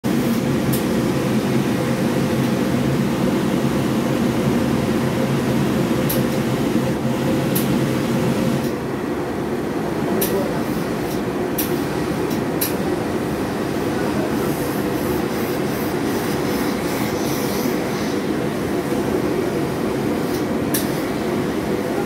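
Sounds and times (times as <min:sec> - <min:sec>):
steam hissing from iron: 0:14.2 - 0:18.3.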